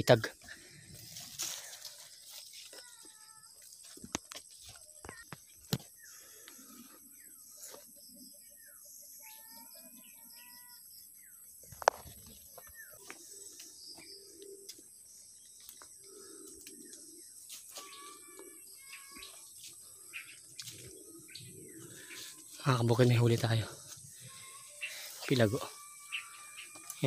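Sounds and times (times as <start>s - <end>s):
footsteps through grass and leaves: 0.4s - 7.9s, 17.3s - 27.0s
birds chirping and whistling: 5.2s - 27.0s.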